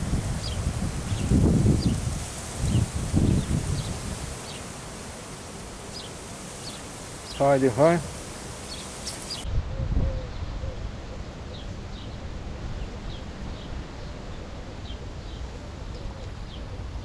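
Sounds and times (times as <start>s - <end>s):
wind rumbling on microphone: 0.0s - 17.0s
small birds chirping: 0.2s - 5.1s, 5.8s - 9.4s.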